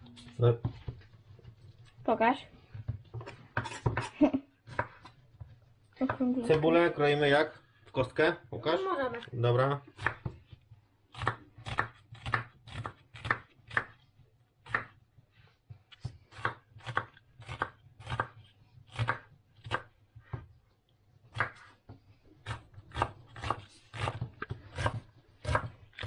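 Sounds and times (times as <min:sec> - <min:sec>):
knife chopping on cutting board: 0:10.0 - 0:14.0, 0:14.6 - 0:15.0, 0:15.9 - 0:20.5, 0:21.3 - 0:21.8, 0:22.4 - 0:26.0.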